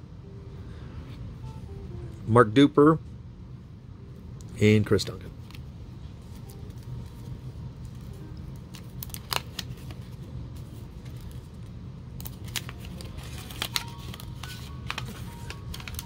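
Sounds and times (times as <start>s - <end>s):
steady low hum: 0.0s - 16.0s
wrapper crinkling and crackling: 6.3s - 10.2s, 11.0s - 16.0s.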